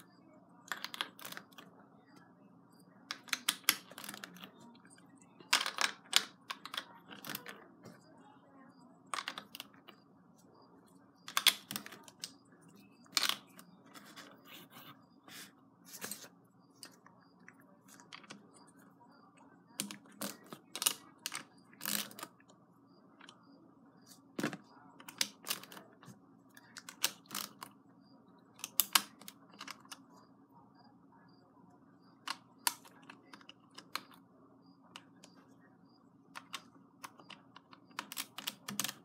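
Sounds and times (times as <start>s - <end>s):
plastic bricks clicking onto baseplate: 0.7s - 1.6s, 3.1s - 4.5s, 5.5s - 7.6s, 9.1s - 9.9s, 11.2s - 12.4s, 19.8s - 22.3s, 28.6s - 30.0s, 36.4s - 39.0s.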